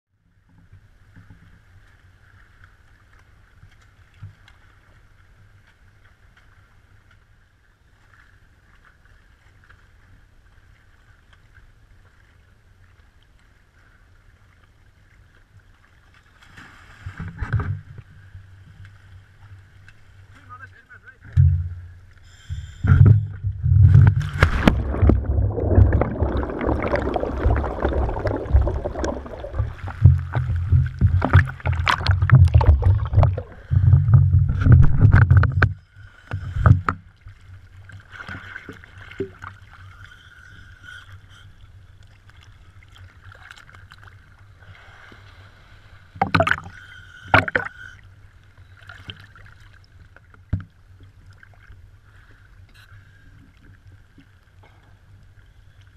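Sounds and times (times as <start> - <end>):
water lapping: 1.9 - 55.9
seawater sloshing and churning: 21.7 - 55.9
short water splashes: 22.8 - 39.9, 46.1 - 47.9.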